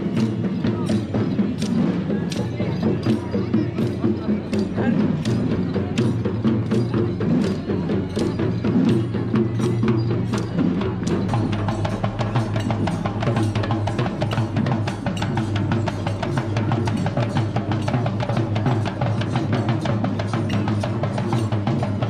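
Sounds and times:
hand drums in fast rhythm: 0.0s - 22.0s.

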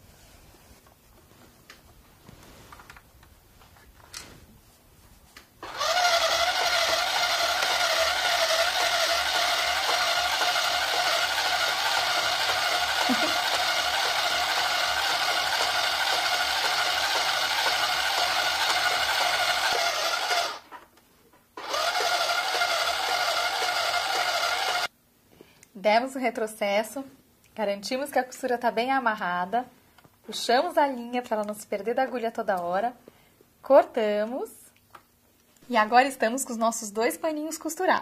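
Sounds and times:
toy sewing machine motor whine: 5.6s - 20.7s, 21.6s - 24.9s.

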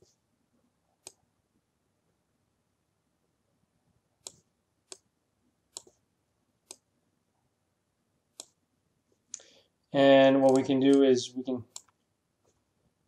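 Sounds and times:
computer mouse clicks: 1.0s - 1.2s, 4.2s - 5.1s, 5.7s - 6.0s, 6.6s - 6.9s, 8.3s - 8.6s, 10.4s - 11.1s, 11.7s - 12.6s.

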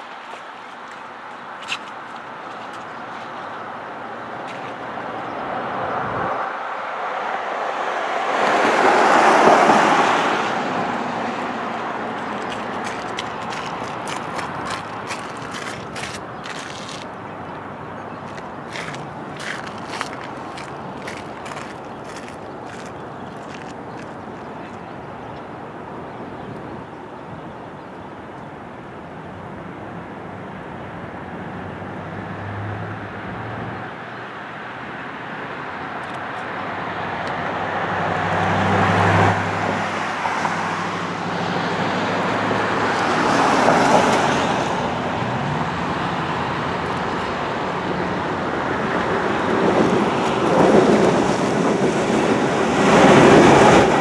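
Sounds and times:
outdoor background noise: 0.0s - 54.0s
diesel locomotive engine hum: 2.2s - 26.1s, 27.6s - 54.0s
vehicle passing by: 3.6s - 24.9s, 31.3s - 35.7s, 36.6s - 54.0s
continuous rushing background: 9.8s - 31.7s, 40.1s - 54.0s.

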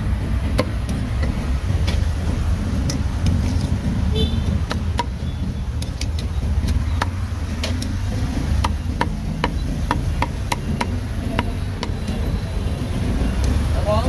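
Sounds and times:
low rumble of street traffic: 0.0s - 14.0s
cleaver chopping meat on block: 5.8s - 12.0s.

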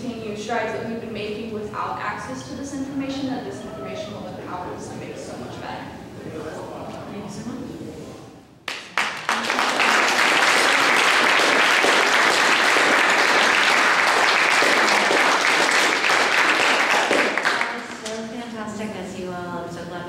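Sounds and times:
audience applauding: 8.7s - 18.2s.

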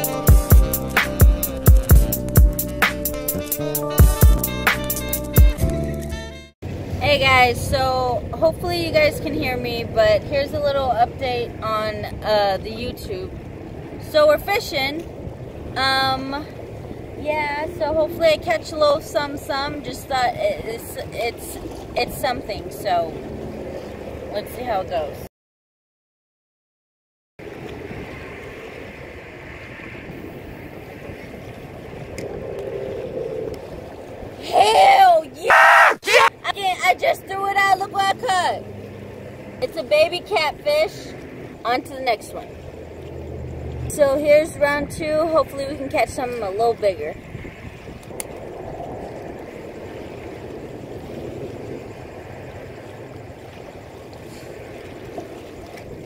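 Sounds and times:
faint wash of water: 6.6s - 25.3s, 27.4s - 56.0s
wind rumble on microphone: 6.6s - 25.3s, 27.4s - 35.5s, 36.4s - 56.0s.

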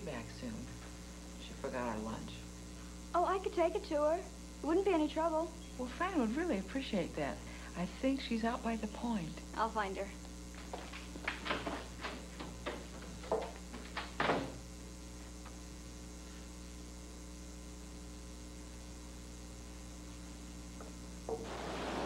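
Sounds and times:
electrical mains hum: 0.0s - 22.0s
footsteps: 10.5s - 14.6s
door: 14.0s - 14.6s.

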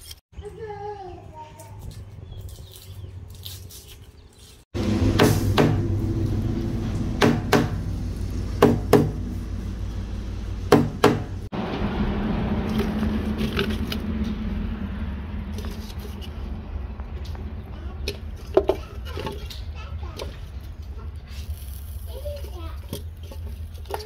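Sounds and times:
cleaver chopping meat on wood: 5.2s - 5.9s, 7.2s - 7.8s, 8.6s - 9.2s, 10.7s - 11.3s.

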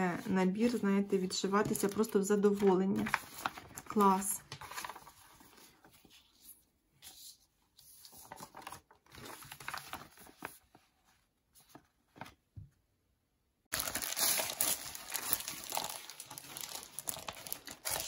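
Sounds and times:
packaging rustling and crinkling: 1.7s - 6.1s, 8.1s - 12.4s, 13.7s - 18.0s.

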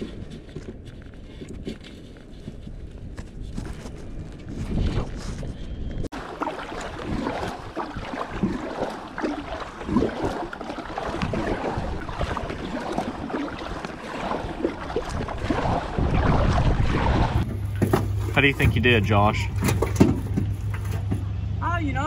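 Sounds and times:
wind buffeting microphone: 0.0s - 17.8s
water lapping against kayak hull: 4.5s - 21.1s
small splashes: 6.1s - 21.1s.

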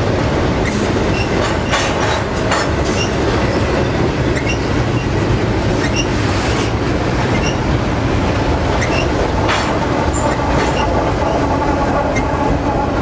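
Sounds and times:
diesel locomotive passing: 0.0s - 13.0s
train wheels rumbling on rails: 0.0s - 13.0s
high wheel squeaks: 0.6s - 2.0s, 2.6s - 7.7s, 8.8s - 11.5s.

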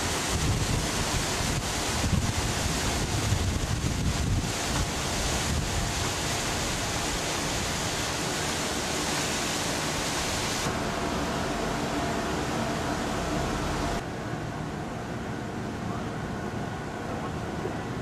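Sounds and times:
outdoor rushing hiss: 0.0s - 14.1s
wind buffeting microphone: 0.1s - 7.0s.

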